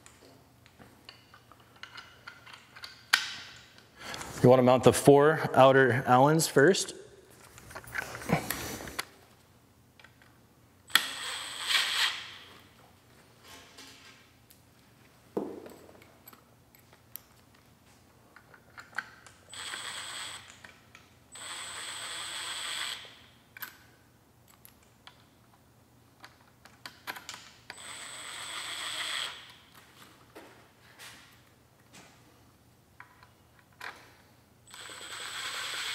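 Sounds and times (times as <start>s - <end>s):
cordless driver spinning: 19.6s - 20.6s, 34.7s - 35.9s.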